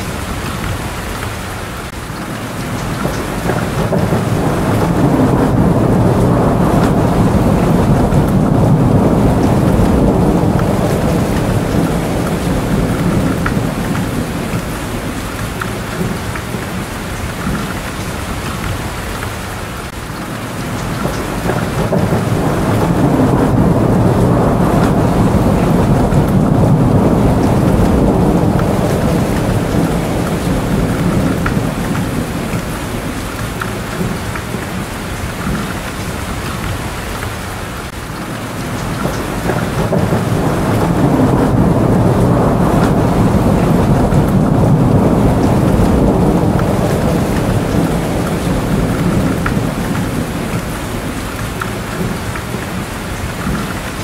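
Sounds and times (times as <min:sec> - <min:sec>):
heavy rain: 0:00.0 - 0:54.0
low rolling thunder: 0:00.0 - 0:54.0.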